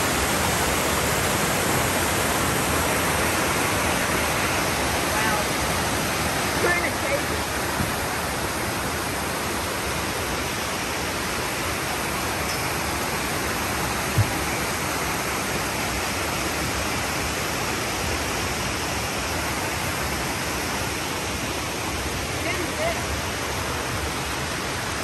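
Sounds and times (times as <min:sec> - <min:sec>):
creek cascading over rocks: 0:00.0 - 0:25.0
low thump: 0:07.8 - 0:08.0, 0:14.1 - 0:14.4.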